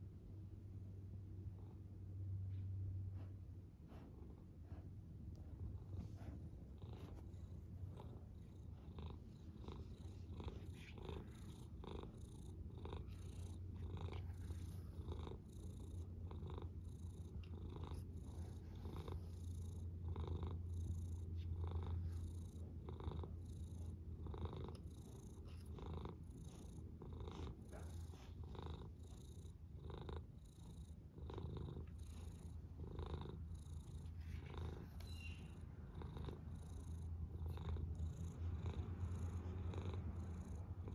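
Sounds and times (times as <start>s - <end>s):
cat purring: 3.2s - 40.9s.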